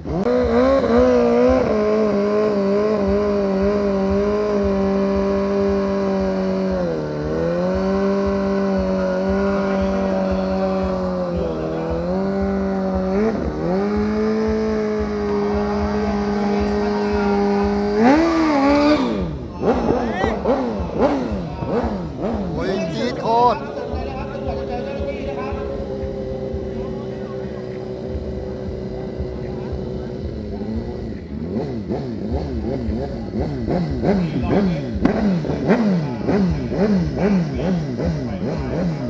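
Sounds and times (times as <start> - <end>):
motorcycle engine at high revs: 0.0 - 39.0.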